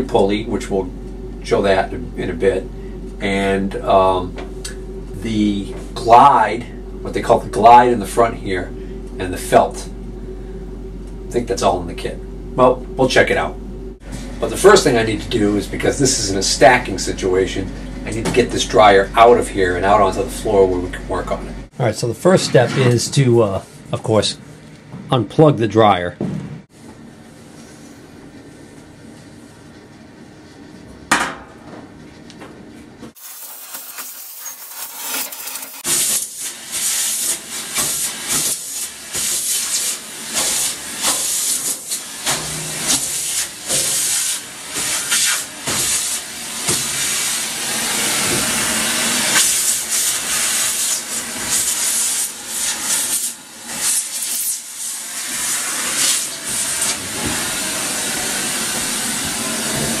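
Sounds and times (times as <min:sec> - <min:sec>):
vacuum cleaner suction hiss: 0:33.2 - 1:00.0.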